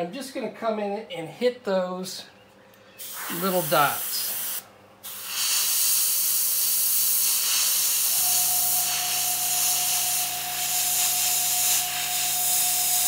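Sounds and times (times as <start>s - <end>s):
airbrush hissing: 3.0s - 13.0s
low hum with thin whine: 6.3s - 13.0s.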